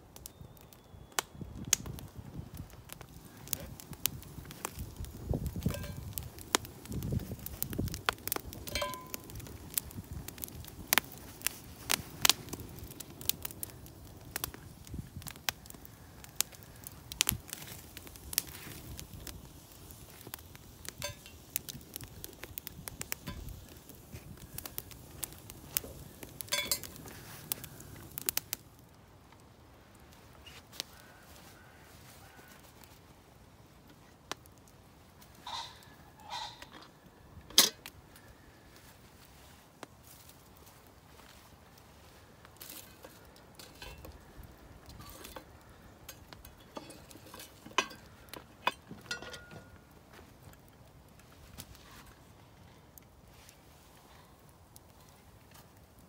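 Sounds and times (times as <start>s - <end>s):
campfire crackling and popping: 0.0s - 56.0s
metallic clinks of pot handle: 8.7s - 9.2s, 26.5s - 26.8s.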